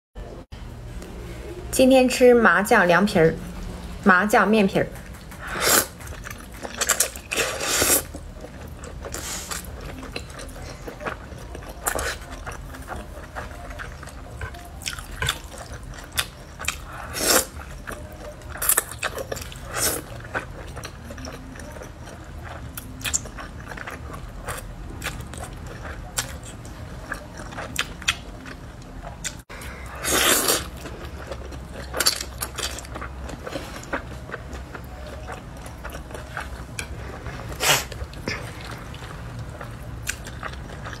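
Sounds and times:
wet chewing sounds: 0:04.8 - 0:41.0
loud noodle slurps: 0:05.4 - 0:06.0, 0:07.3 - 0:08.1, 0:30.0 - 0:30.7.

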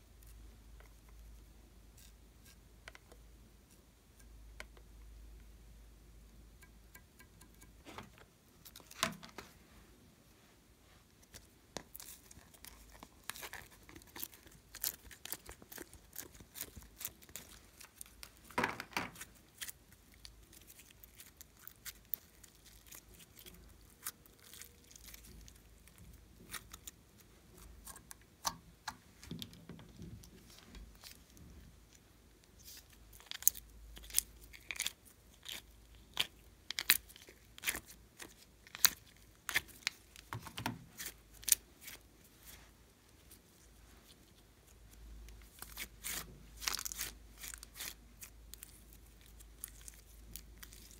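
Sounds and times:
slime sticky tearing and crackling: 0:11.3 - 0:18.5, 0:19.1 - 0:27.2, 0:32.5 - 0:40.3, 0:44.0 - 0:50.9.

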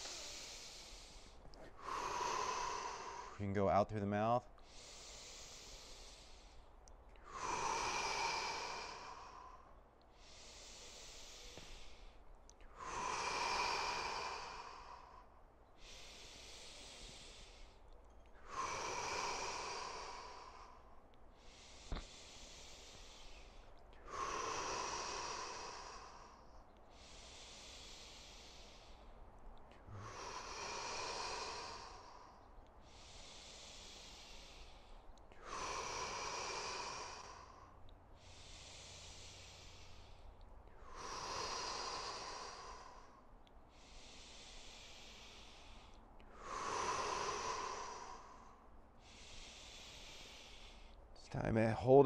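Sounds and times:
man breathing slowly: 0:00.0 - 0:52.0.

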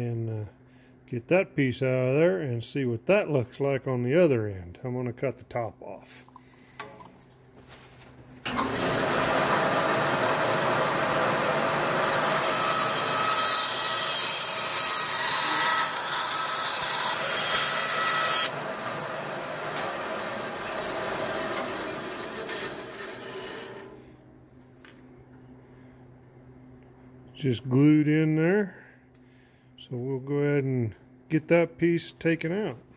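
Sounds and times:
band saw cutting plastic: 0:09.0 - 0:24.0.

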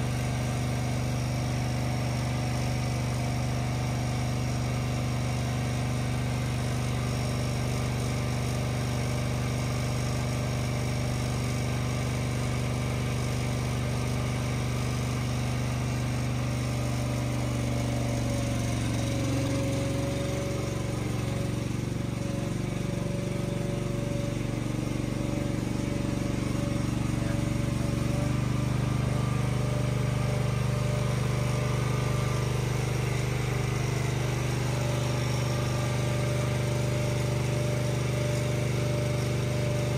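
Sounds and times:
motor humming: 0:17.1 - 0:39.9.

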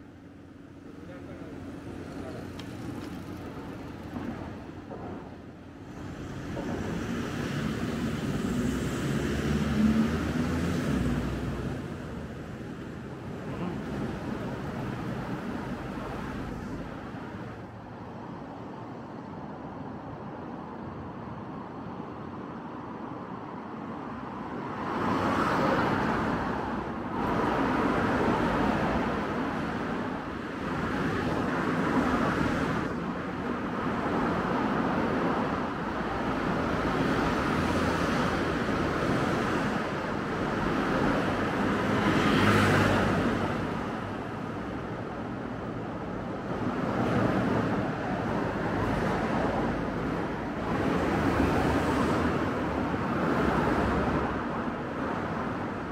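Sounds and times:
cars passing: 0:00.0 - 0:19.0, 0:23.3 - 0:55.9.

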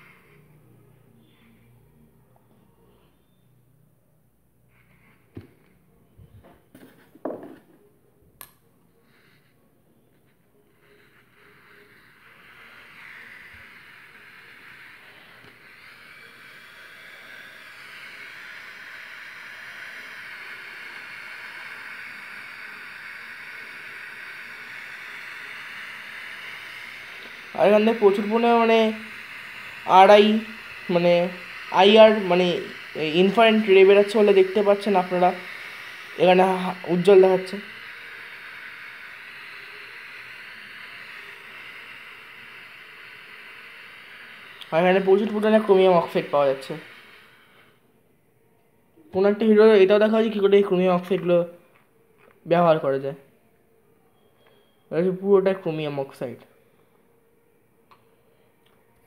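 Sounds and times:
burning chemical hissing: 0:00.0 - 0:01.7, 0:08.9 - 0:47.8, 0:49.2 - 0:51.6.

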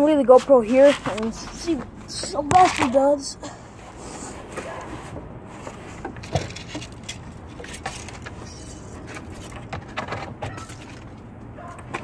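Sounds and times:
clicks and rustles: 0:04.5 - 0:12.0.

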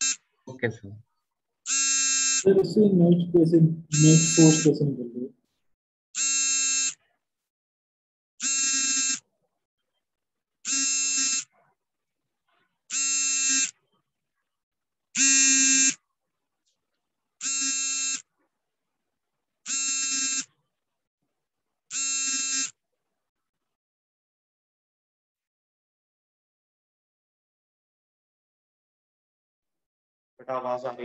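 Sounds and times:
buzzy electronic alert beeps: 0:02.5 - 0:05.1.

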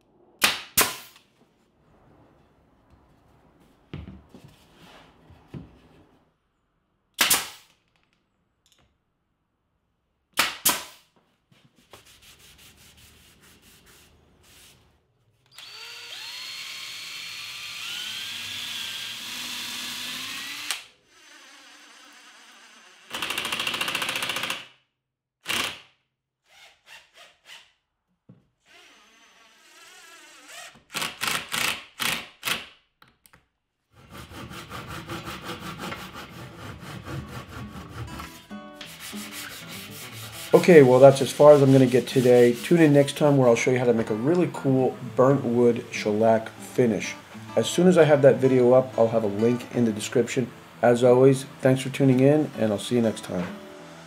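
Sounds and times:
nail gun firing: 0:00.4 - 0:01.2, 0:07.2 - 0:07.8, 0:10.4 - 0:11.0, 0:23.1 - 0:24.8, 0:25.4 - 0:26.0, 0:30.9 - 0:32.8
power drill whirring: 0:15.4 - 0:24.6, 0:28.6 - 0:32.6
hand saw cutting wood: 0:33.9 - 0:46.9.

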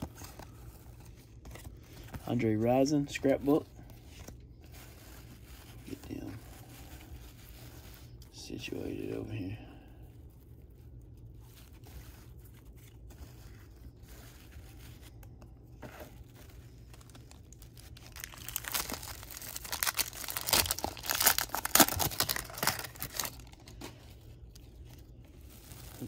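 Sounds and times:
cards rustling: 0:00.0 - 0:26.0
wrapper tearing and crinkling: 0:16.2 - 0:26.0.

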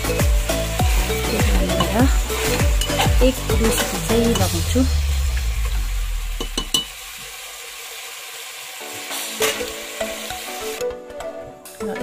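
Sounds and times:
curry sizzling in a pot: 0:00.0 - 0:12.0
spoon clinking against pot: 0:01.8 - 0:03.2
low rumble: 0:03.4 - 0:06.6.

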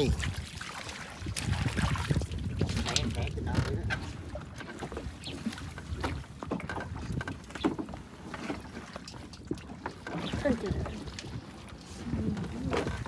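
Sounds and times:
knocks and clatter in boat: 0:00.0 - 0:13.0
water splashing against wooden boat: 0:00.0 - 0:13.0.

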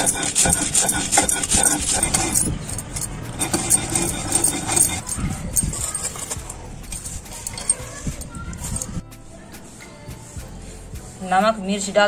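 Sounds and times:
stone grinding on stone: 0:00.0 - 0:09.0
bangles jingling: 0:00.0 - 0:10.0.

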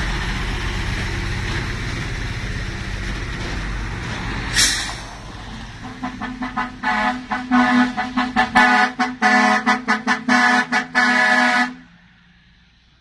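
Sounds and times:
low engine rumble: 0:00.0 - 0:13.0
truck horn honking: 0:05.8 - 0:11.9.

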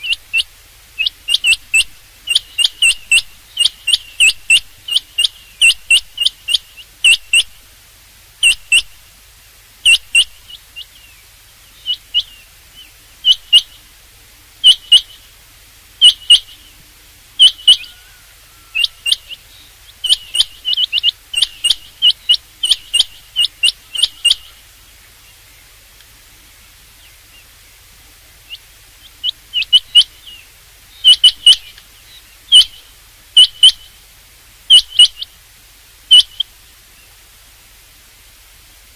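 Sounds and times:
quail calling: 0:00.0 - 0:07.6, 0:08.4 - 0:09.0, 0:09.8 - 0:11.2, 0:11.8 - 0:13.9, 0:14.6 - 0:15.4, 0:16.0 - 0:16.8, 0:17.4 - 0:24.7, 0:28.4 - 0:34.0, 0:34.7 - 0:35.3, 0:36.1 - 0:36.5.

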